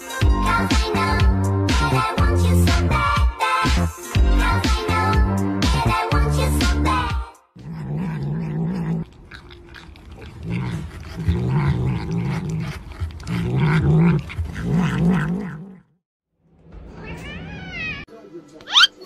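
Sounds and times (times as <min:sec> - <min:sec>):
cat growling: 0:07.6 - 0:16.0.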